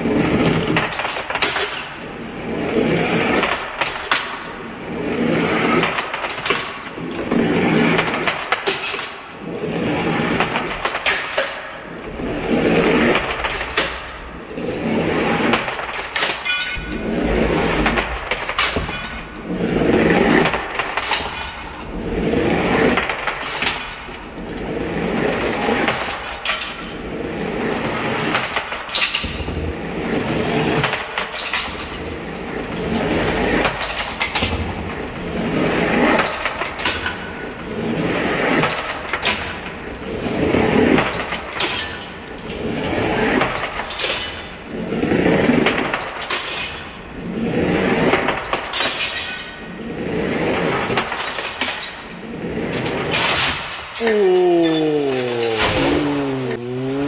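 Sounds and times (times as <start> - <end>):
heavy ball rolling on bricks: 2.0 - 8.7, 11.8 - 16.0, 16.8 - 26.2
glass bottles breaking: 3.8 - 4.6, 5.9 - 7.2, 8.5 - 9.5, 10.8 - 11.9, 15.8 - 17.0, 18.4 - 19.4, 26.0 - 27.1, 28.5 - 29.6, 31.3 - 32.3, 36.3 - 37.4, 41.6 - 42.4, 43.8 - 44.6, 46.2 - 47.1, 48.6 - 49.7, 51.1 - 57.0.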